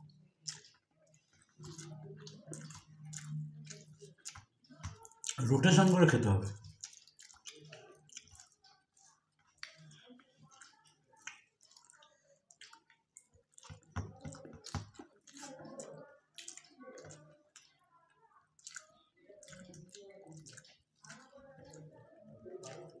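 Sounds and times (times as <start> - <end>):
wet chewing and lip smacks: 0.0 - 17.8, 18.5 - 23.0.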